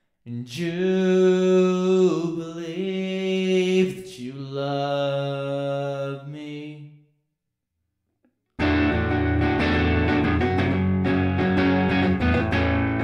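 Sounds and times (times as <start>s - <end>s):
man singing unaccompanied: 0.3s - 7.1s.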